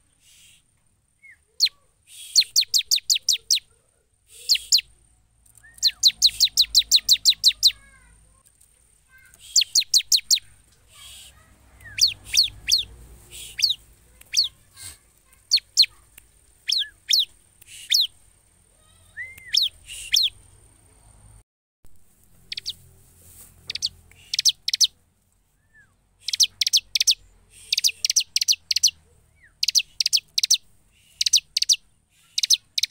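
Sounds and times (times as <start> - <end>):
bird chirping rapidly: 1.2 - 3.7, 4.3 - 4.9, 5.5 - 7.9, 9.2 - 14.7, 15.3 - 18.2, 18.8 - 20.6, 22.4 - 22.8, 23.6 - 25.0, 26.2 - 32.9.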